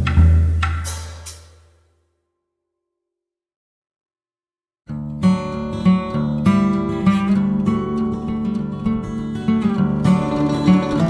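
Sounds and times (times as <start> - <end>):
acoustic guitar plucking: 4.9 - 11.0.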